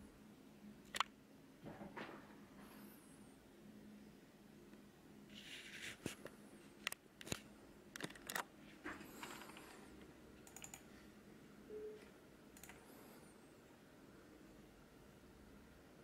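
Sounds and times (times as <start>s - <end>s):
faint steady hum: 0.0s - 16.0s
quiet clicks: 9.2s - 10.9s, 12.0s - 12.9s.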